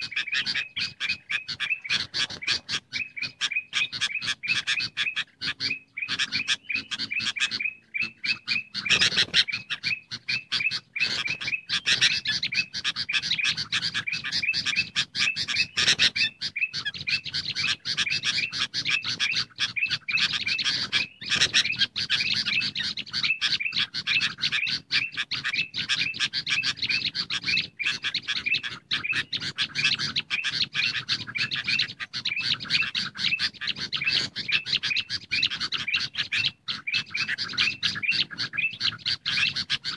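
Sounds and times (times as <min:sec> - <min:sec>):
bulbuls chattering: 0:00.0 - 0:39.9.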